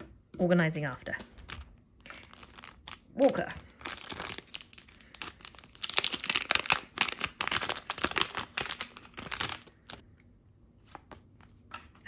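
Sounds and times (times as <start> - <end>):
foil wrapper tearing and crinkling: 1.2 - 10.0.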